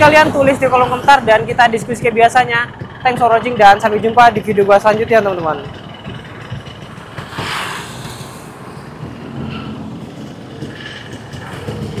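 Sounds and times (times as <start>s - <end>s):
road traffic engine hum: 0.0s - 12.0s
vehicle passing: 6.8s - 12.0s.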